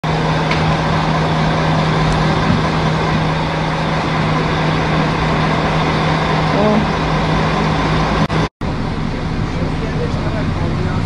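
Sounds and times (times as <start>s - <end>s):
bus engine idling: 0.0s - 11.0s.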